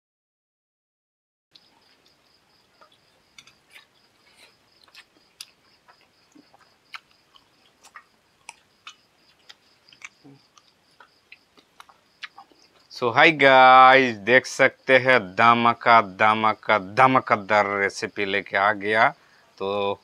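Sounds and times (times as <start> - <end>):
wet eating smacks and chewing: 1.6 - 12.9.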